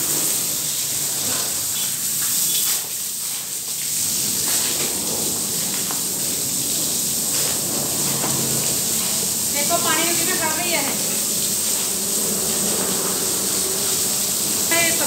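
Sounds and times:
hose water splashing on floor: 0:00.0 - 0:15.0.

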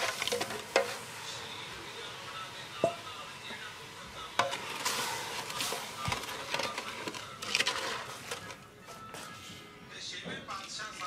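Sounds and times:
wooden spatula scraping a pot: 0:00.0 - 0:01.2, 0:04.4 - 0:09.3.

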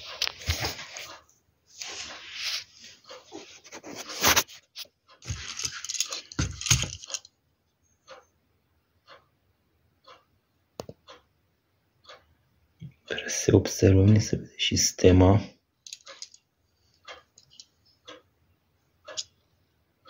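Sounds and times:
paper rustling: 0:01.8 - 0:07.2.

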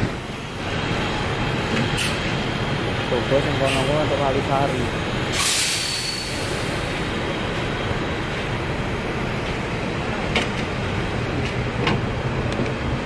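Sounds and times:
diesel bus engine idling: 0:00.0 - 0:13.0
footsteps on bus door steps: 0:09.2 - 0:13.0.

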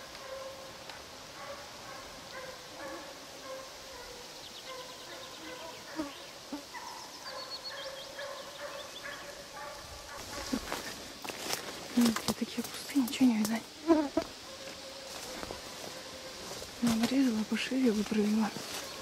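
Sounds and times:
hounds baying: 0:00.0 - 0:00.7, 0:01.3 - 0:06.0, 0:06.7 - 0:10.8.

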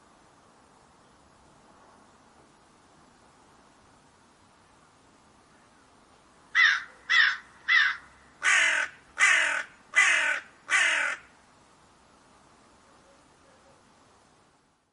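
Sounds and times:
crow cawing: 0:06.6 - 0:11.3.

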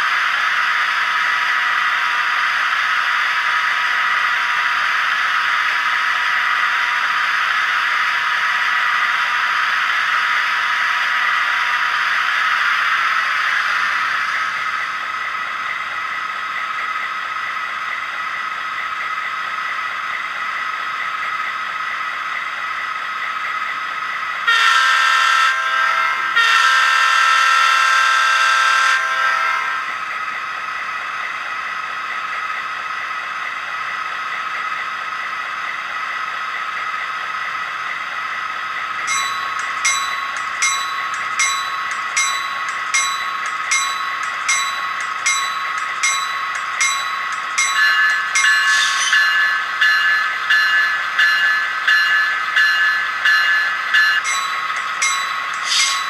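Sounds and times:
locomotive horn blasts: 0:24.5 - 0:29.8
locomotive bell ringing: 0:39.0 - 0:56.0.

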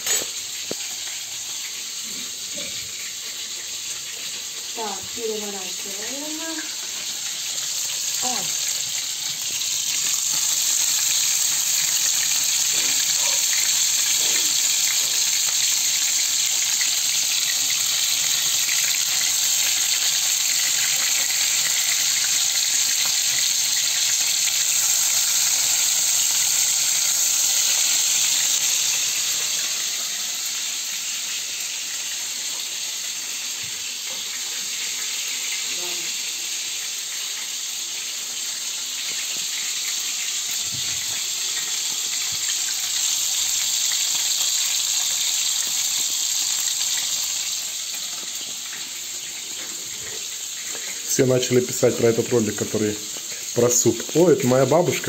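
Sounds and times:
meat sizzling in oil: 0:00.0 - 0:55.0
spatula turning meat: 0:06.6 - 0:15.3.

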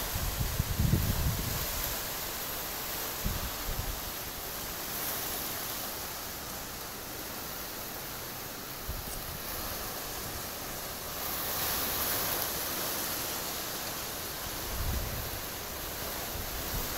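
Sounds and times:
wind buffeting microphone: 0:00.0 - 0:02.3, 0:03.2 - 0:04.2, 0:14.4 - 0:16.9
strong wind through palm fronds: 0:00.0 - 0:16.9.

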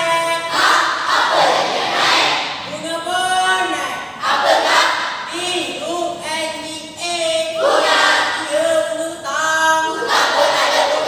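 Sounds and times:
children singing in unison: 0:00.5 - 0:02.6, 0:04.2 - 0:05.2, 0:07.6 - 0:08.5, 0:09.9 - 0:11.0.

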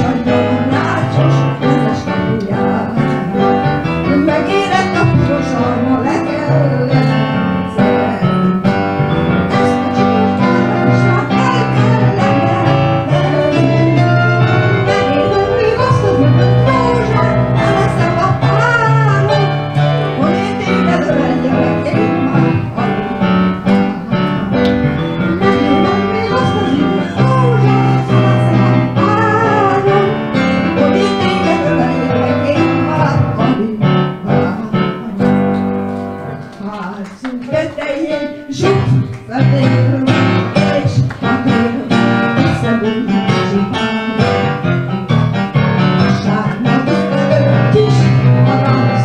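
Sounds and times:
woman singing with vibrato: 0:00.0 - 0:08.7, 0:09.5 - 0:35.6, 0:36.5 - 0:44.7, 0:46.0 - 0:49.0
electronic keyboard: 0:00.0 - 0:36.9, 0:38.0 - 0:49.0.

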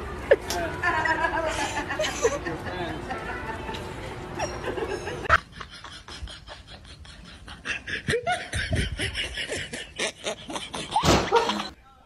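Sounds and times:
person laughing: 0:04.4 - 0:11.8.

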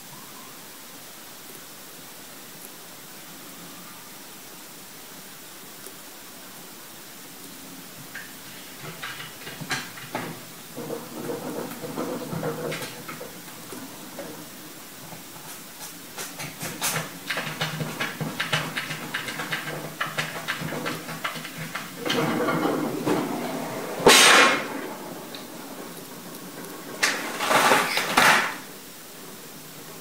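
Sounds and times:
cat scratching at drawer: 0:15.2 - 0:24.8.

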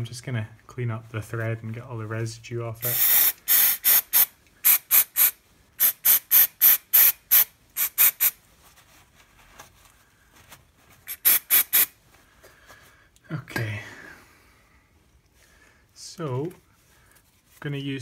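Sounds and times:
aerosol spray hisses: 0:02.8 - 0:08.4.

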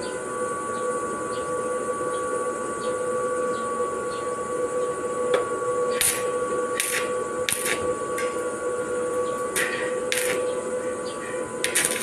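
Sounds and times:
steady whine: 0:00.0 - 0:12.0
welding arc hissing: 0:05.3 - 0:12.0.

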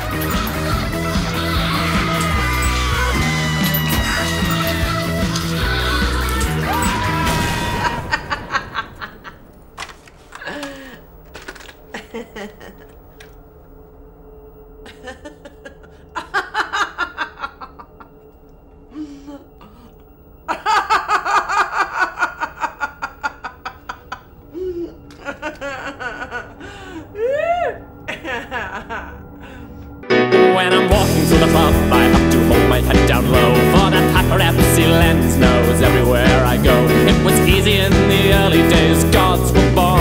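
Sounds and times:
music: 0:00.0 - 0:08.4, 0:10.4 - 0:40.0
woman laughing: 0:05.6 - 0:09.5, 0:11.8 - 0:13.3, 0:14.8 - 0:18.4, 0:20.5 - 0:29.8.

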